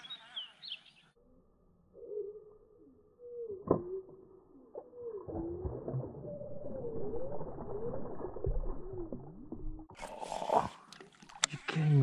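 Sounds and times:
slowed low water splash: 3.6 - 11.4.

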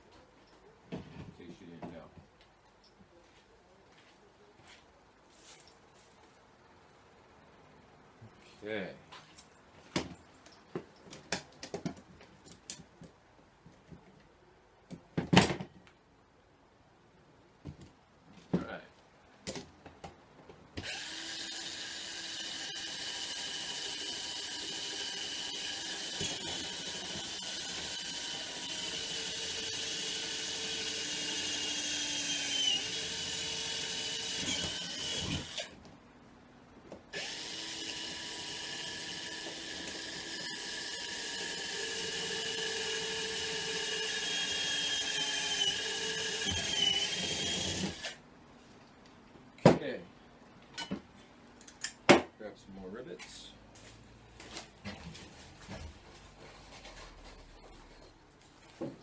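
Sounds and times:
cordless drill whining: 20.8 - 35.7, 37.1 - 48.2.

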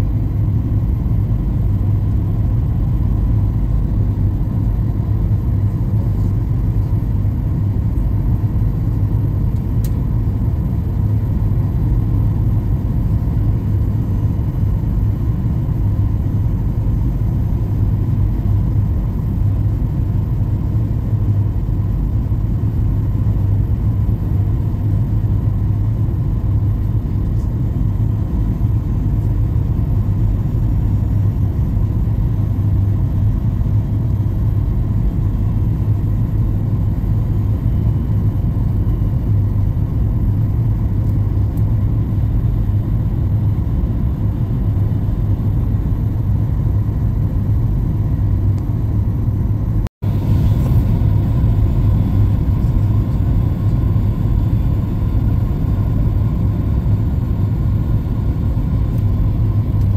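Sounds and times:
airliner cabin engine rumble: 0.0 - 59.9
steady low hum: 0.0 - 59.9.

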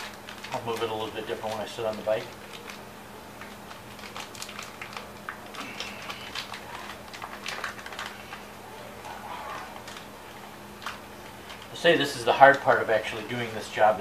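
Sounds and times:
packet rustling: 0.0 - 13.8.

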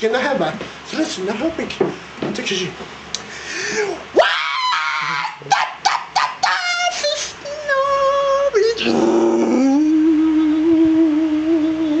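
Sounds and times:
man yelping and whimpering: 3.8 - 9.9
man holding long sung notes: 5.4 - 12.0.

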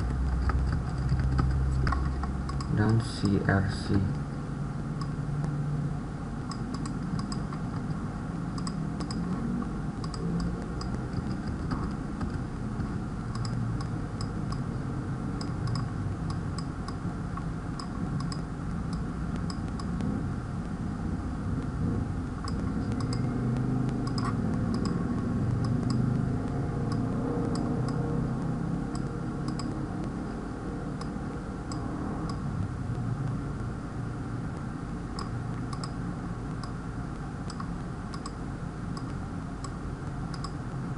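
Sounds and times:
keyboard and mouse clicks: 0.0 - 2.8, 6.5 - 9.4, 10.0 - 14.7, 15.4 - 20.1, 22.4 - 26.2, 26.8 - 28.0, 28.9 - 30.2, 35.2 - 36.8, 37.5 - 40.6
steady low hum: 0.0 - 40.9.

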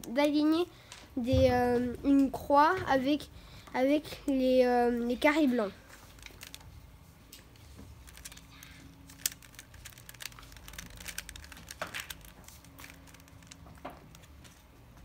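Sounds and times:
puzzle cube clicking and rattling: 5.3 - 6.8, 7.4 - 14.6.

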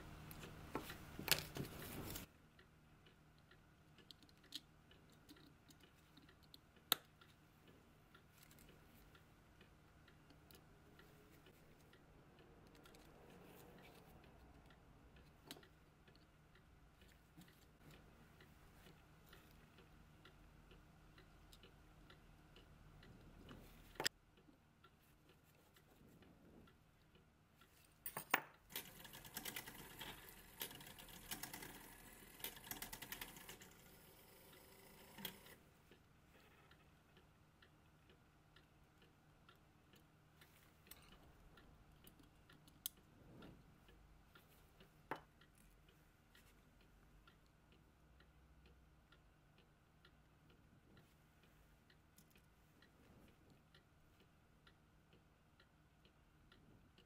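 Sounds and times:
tweezers clicking on metal parts: 40.8 - 43.1.

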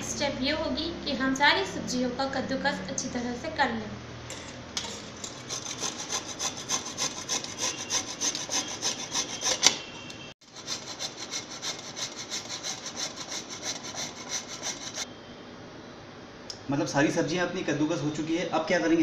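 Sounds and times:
vegetable scraped on a grater: 5.4 - 9.8, 10.4 - 15.1.

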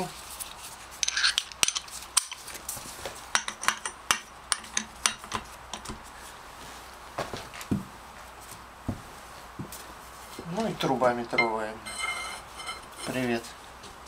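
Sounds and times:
steel hand tools clinking: 11.4 - 13.3.

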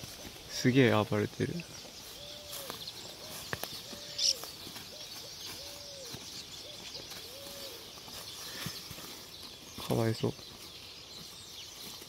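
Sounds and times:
dove cooing: 2.1 - 8.6.

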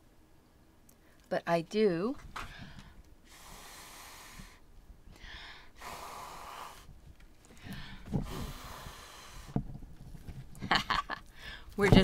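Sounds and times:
person blowing puffs of air: 2.6 - 7.0, 7.6 - 9.6.

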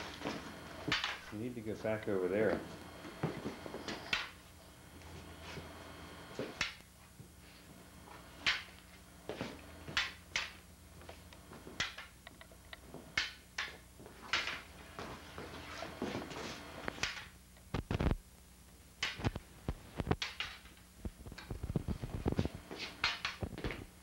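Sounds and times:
faint low hum: 0.0 - 24.0
plastic poles clacking together: 14.3 - 14.6, 20.1 - 20.8, 23.0 - 23.4.

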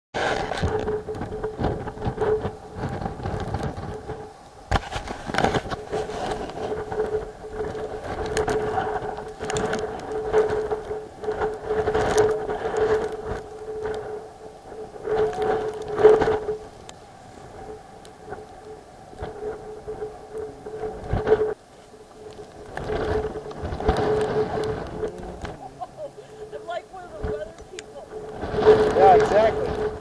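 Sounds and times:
gusty wind buffeting microphone: 0.2 - 30.0
surf rumbling: 0.2 - 30.0.

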